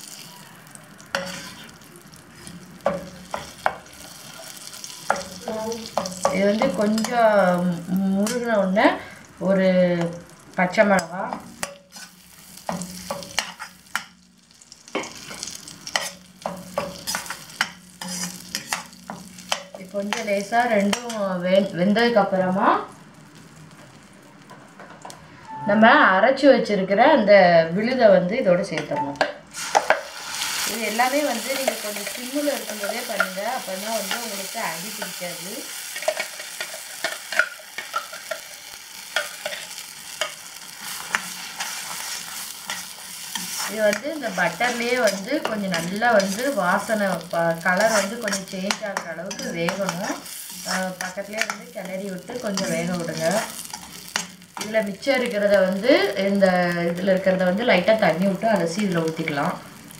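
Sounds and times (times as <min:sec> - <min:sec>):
frying sizzle: 0:00.0 - 0:26.2, 0:27.8 - 0:59.9
spoon scraping a pan: 0:01.1 - 0:01.7, 0:10.9 - 0:14.1, 0:14.9 - 0:21.2, 0:29.6 - 0:54.8.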